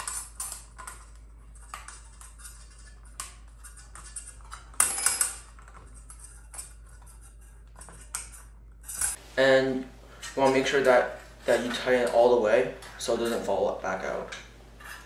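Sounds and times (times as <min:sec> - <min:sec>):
hex key clicking and scraping: 0:00.0 - 0:09.2.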